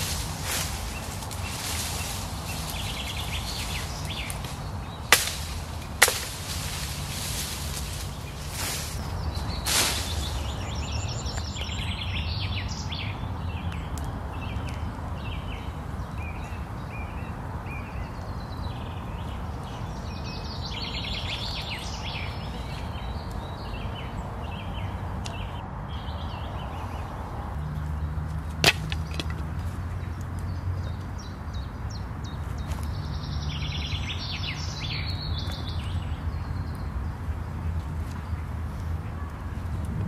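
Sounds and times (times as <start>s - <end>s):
branches cracking: 0.0s - 12.0s, 27.7s - 30.6s
steady low rumble: 0.0s - 17.4s, 35.8s - 40.0s
songbirds chirping: 0.0s - 40.0s.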